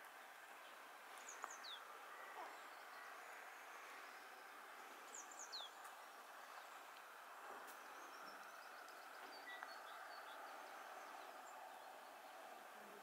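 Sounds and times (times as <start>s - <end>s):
faint background hiss: 0.0s - 13.0s
faint high bird chirps: 7.7s - 12.2s.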